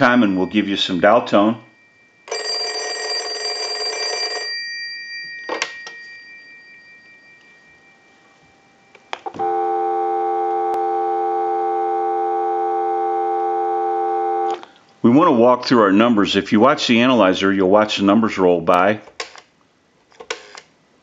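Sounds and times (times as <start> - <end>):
telephone bell ringing: 1.6 - 14.6
steady dial tone: 8.9 - 14.7.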